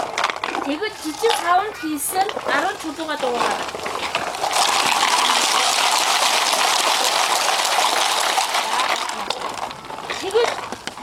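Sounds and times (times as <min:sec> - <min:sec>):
pebbles rattling in plastic bottles: 0:00.0 - 0:11.0.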